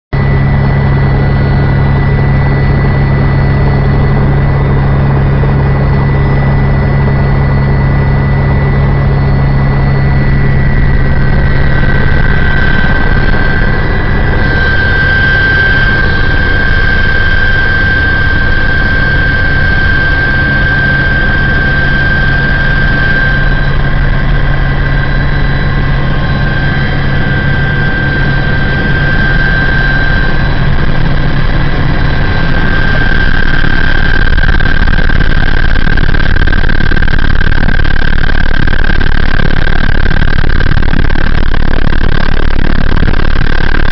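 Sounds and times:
small aircraft engine: 0.1s - 43.9s.

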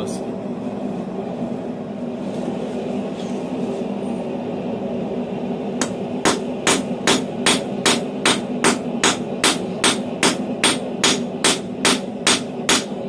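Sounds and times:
steady low hum: 0.0s - 13.0s
hammer striking steel on anvil: 5.8s - 13.0s.

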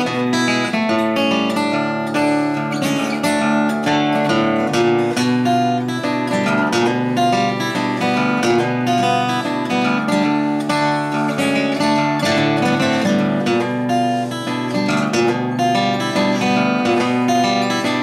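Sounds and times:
acoustic guitar playing: 0.0s - 18.0s.

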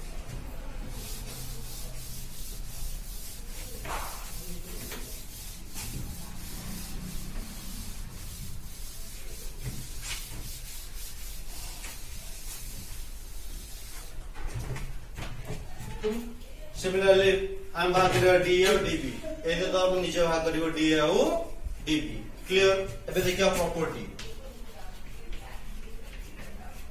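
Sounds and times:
duster rubbing chalk off blackboard: 0.1s - 14.8s.

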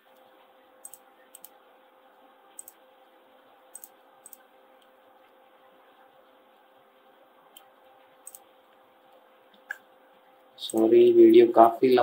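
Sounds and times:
low steady hiss: 0.0s - 12.0s
computer mouse and keyboard clicks: 0.8s - 1.6s, 2.5s - 2.8s, 3.7s - 4.9s, 7.5s - 8.5s.

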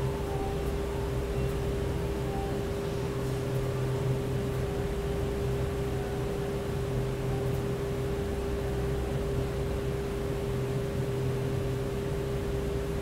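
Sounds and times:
steady machine hum: 0.0s - 13.0s.

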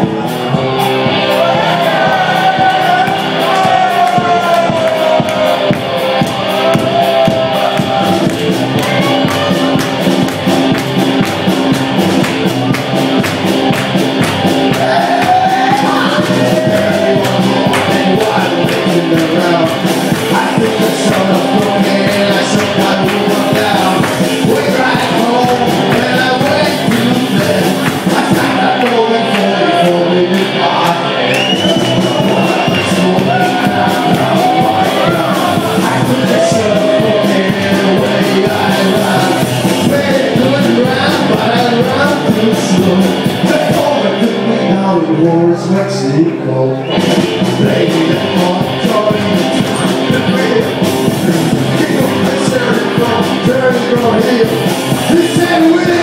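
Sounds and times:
drums: 0.0s - 45.7s, 46.3s - 56.0s
electric guitars: 0.0s - 56.0s
man singing: 14.7s - 56.0s.

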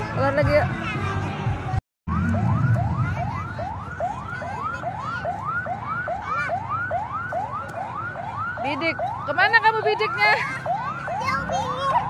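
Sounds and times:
electronic siren yelping: 2.1s - 12.0s.

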